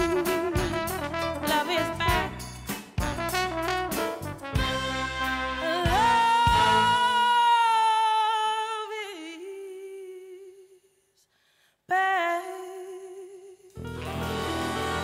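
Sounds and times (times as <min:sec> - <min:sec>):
music: 0:00.0 - 0:08.0, 0:13.7 - 0:15.0.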